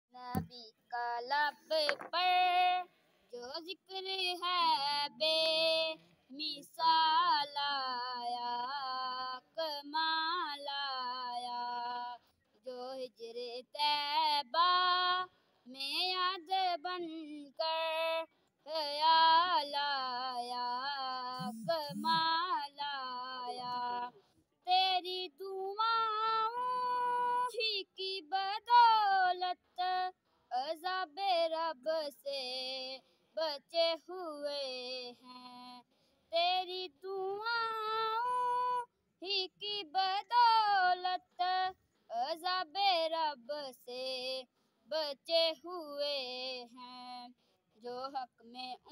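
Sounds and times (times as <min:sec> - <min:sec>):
boy singing solo: 0:18.9 - 0:24.1.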